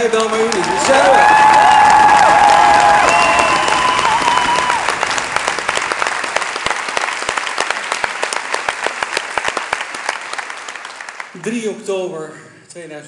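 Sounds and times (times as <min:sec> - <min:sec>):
audience applauding: 0:00.0 - 0:11.7.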